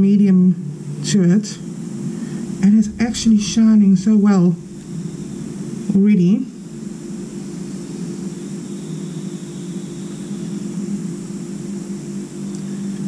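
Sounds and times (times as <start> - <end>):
mechanical drone with low hum: 0.0 - 13.0.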